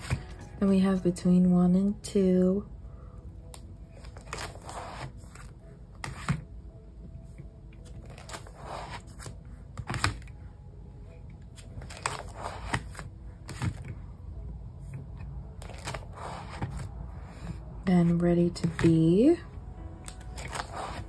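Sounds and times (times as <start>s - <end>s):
plastic pages crinkling: 11.6s - 13.9s, 15.6s - 16.9s, 20.1s - 21.0s.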